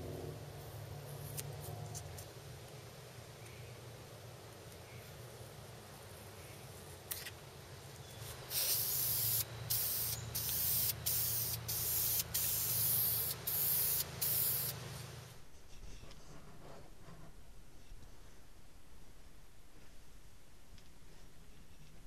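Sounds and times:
spray can hissing bursts: 0:08.2 - 0:14.9.

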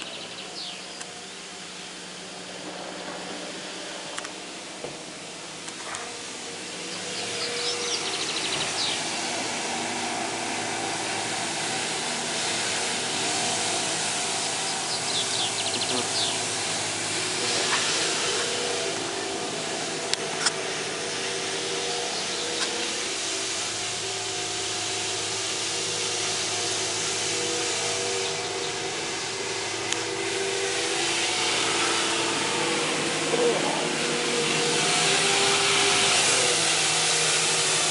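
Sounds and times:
birds chirping: 0:00.0 - 0:01.5, 0:06.8 - 0:09.3, 0:14.4 - 0:19.5, 0:20.4 - 0:23.1, 0:27.9 - 0:29.1
even hiss: 0:00.0 - 0:37.9
propeller engine droning overhead: 0:00.0 - 0:37.9.

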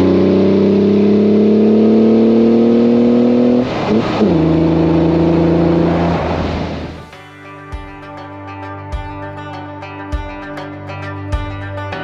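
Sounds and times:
car engine revving: 0:00.0 - 0:07.0.

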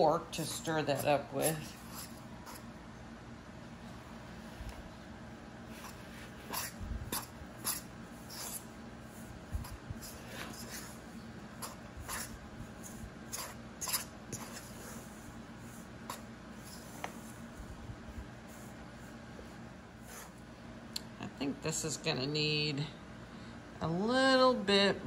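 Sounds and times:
fork scraping metal bowl: 0:05.9 - 0:08.7.

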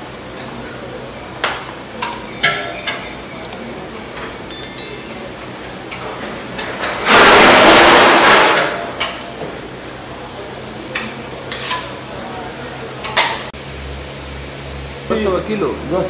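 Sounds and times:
high ringing chime: 0:04.5 - 0:05.5.

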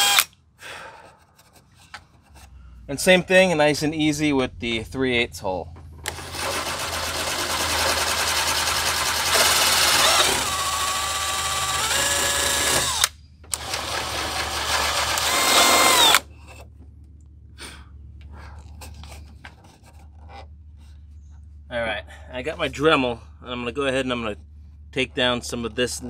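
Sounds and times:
cordless drill whining: 0:00.0 - 0:00.3, 0:06.1 - 0:16.3.

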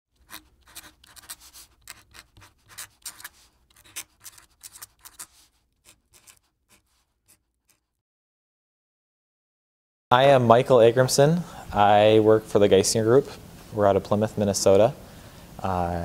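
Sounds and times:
marker scratching strokes: 0:00.2 - 0:08.0.

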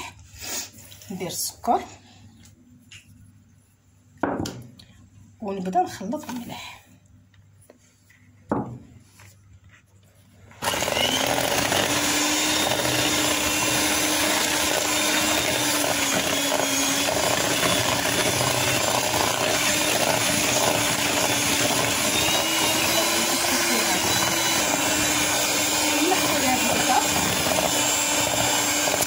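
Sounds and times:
electric mixer humming: 0:10.5 - 0:29.0.

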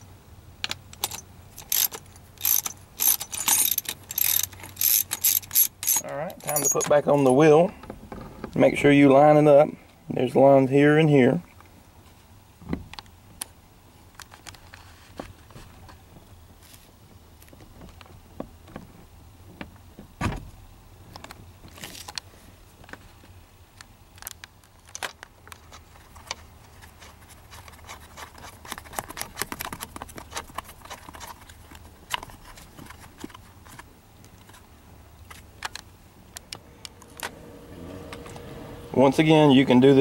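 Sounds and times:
metallic clicks and rattles: 0:00.6 - 0:07.4.

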